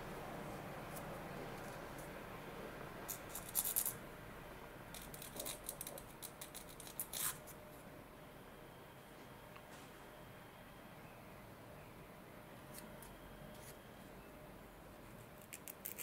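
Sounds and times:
small tool scraping and ticking: 4.9 - 7.5.

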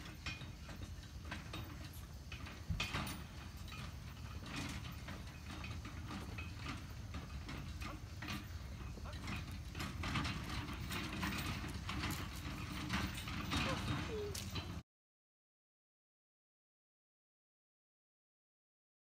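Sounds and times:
horse cart clattering: 0.0 - 14.8.

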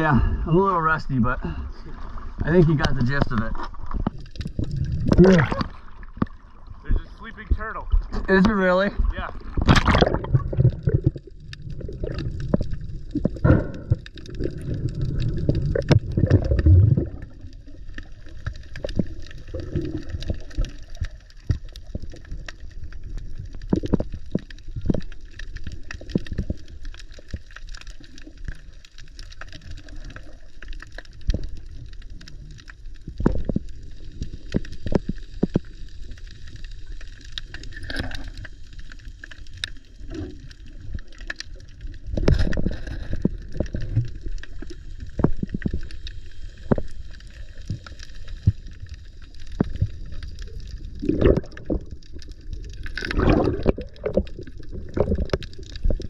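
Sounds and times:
water splashing: 0.8 - 56.0
underwater bubbly gurgles: 1.2 - 56.0
sharp clicks underwater: 2.4 - 8.8, 9.4 - 56.0.

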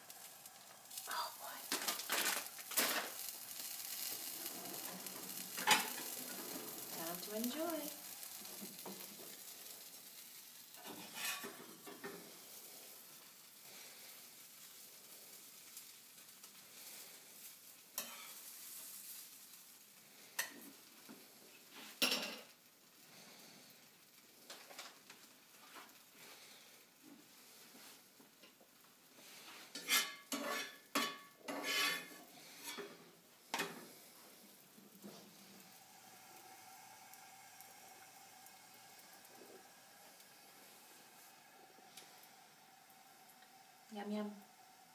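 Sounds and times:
flatbread sizzling in skillet: 0.0 - 44.9
utensils clattering on plate and skillet: 1.7 - 3.3, 4.6 - 7.8, 10.8 - 12.2, 18.0 - 18.4, 21.8 - 22.6, 29.4 - 33.9
scrape or clatter: 10.8 - 12.3, 29.4 - 33.8.

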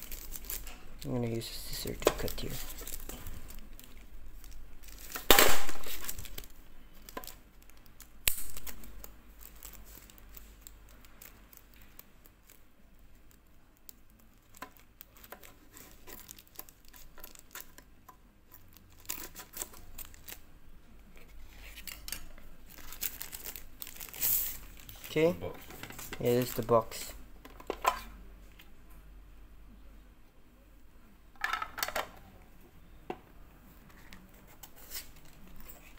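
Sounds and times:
wrapper rustling and crinkling: 0.0 - 17.9, 18.5 - 27.2, 33.8 - 35.9.

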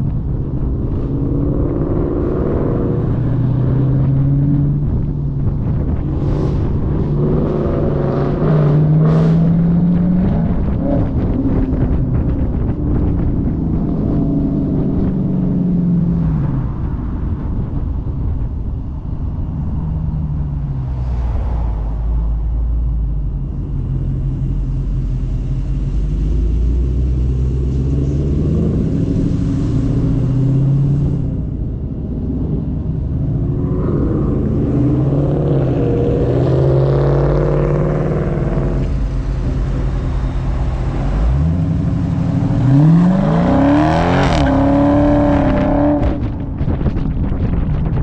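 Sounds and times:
car engine droning and accelerating: 0.0 - 48.0.

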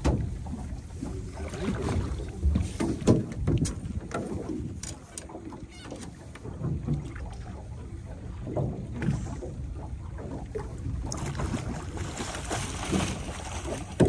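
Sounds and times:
knocks on boat: 0.0 - 0.4, 1.8 - 4.6, 12.8 - 14.0
wind and water against hull: 0.0 - 14.0.

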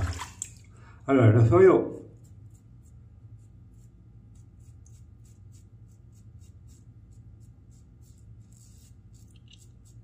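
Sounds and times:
razor scraping stubble: 2.1 - 10.0.

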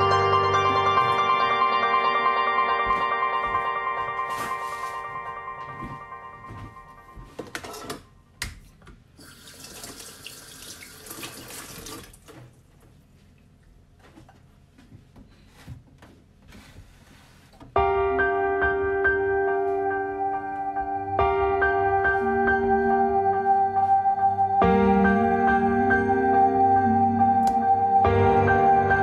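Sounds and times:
background music: 0.0 - 8.3, 17.8 - 29.0.

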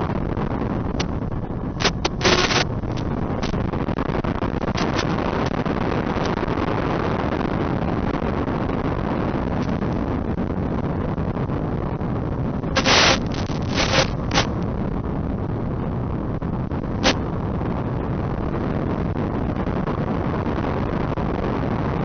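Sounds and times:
rushing wind: 0.0 - 22.0
short loud bursts: 12.8 - 14.5.

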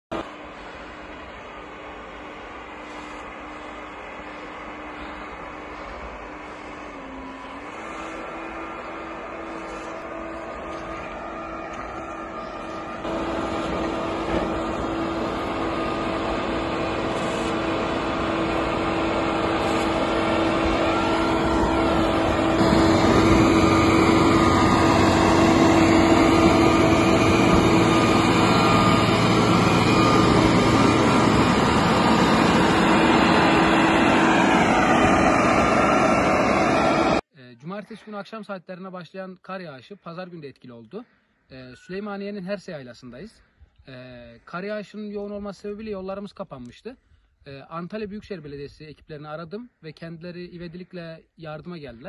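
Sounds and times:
grader diesel engine running: 0.1 - 37.2.

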